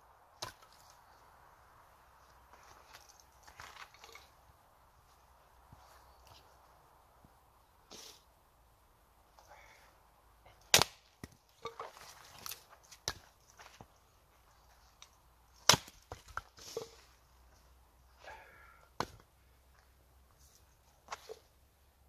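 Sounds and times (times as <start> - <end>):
hatchet chopping wood: 10.6 - 11.8, 15.6 - 16.4, 19.0 - 19.2.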